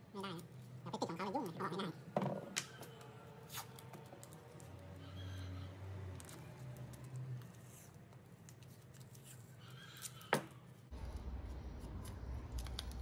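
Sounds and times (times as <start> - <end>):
masking tape rustling and crinkling: 2.7 - 5.0, 5.9 - 13.0.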